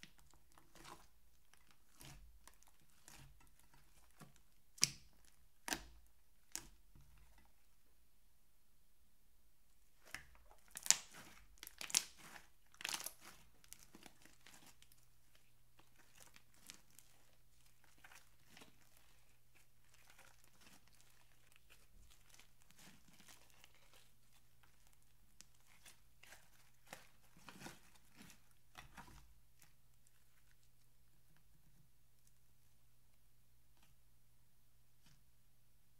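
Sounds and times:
slime being squished by hand: 0.0 - 7.3, 10.0 - 30.5.

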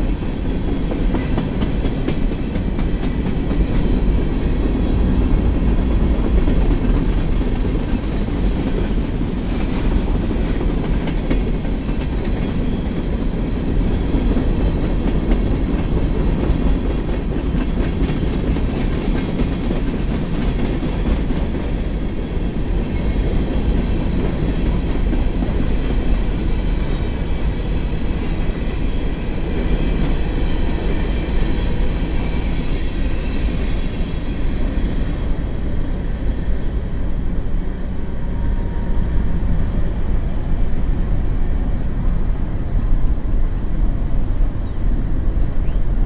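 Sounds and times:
train wheels rumbling on rail: 0.0 - 46.0.

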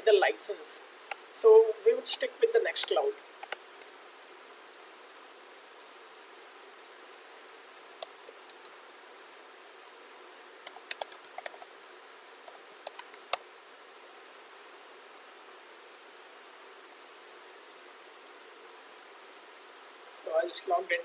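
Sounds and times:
steady hiss: 0.0 - 21.0
computer keyboard typing: 7.8 - 8.7, 10.6 - 11.7, 12.8 - 13.4.

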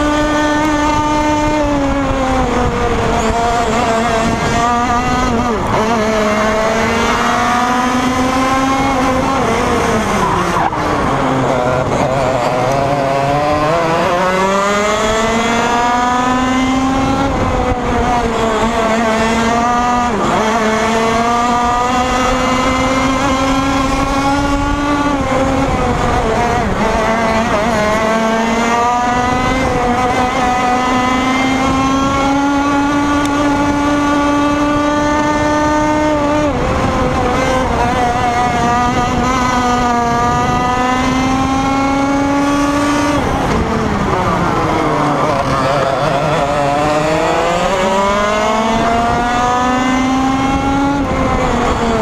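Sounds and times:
kart engine at high revs: 0.0 - 52.0.

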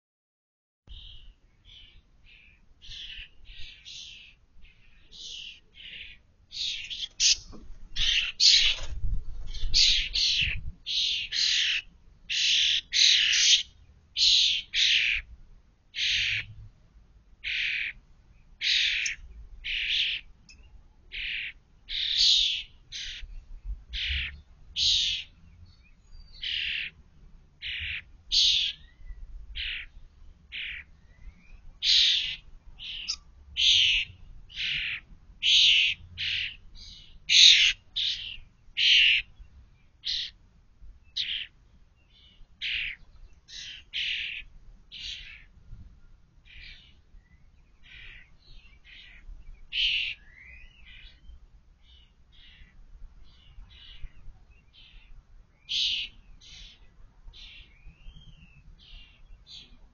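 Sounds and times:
starlings giving harsh calls: 5.0 - 15.3, 18.6 - 20.3, 27.6 - 28.9, 31.8 - 39.3, 40.0 - 40.4.

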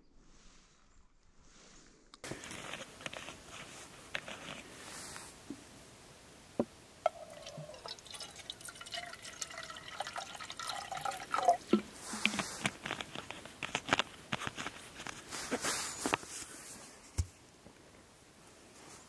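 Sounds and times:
water dripping and trickling: 7.0 - 11.9.

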